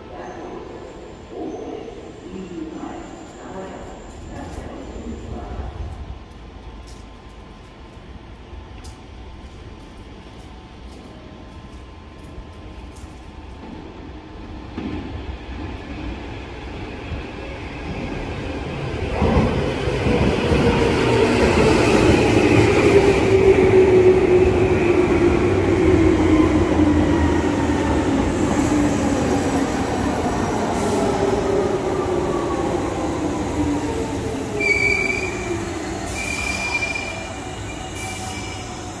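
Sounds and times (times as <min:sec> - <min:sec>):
high brake squeals: 0:34.6 - 0:38.9.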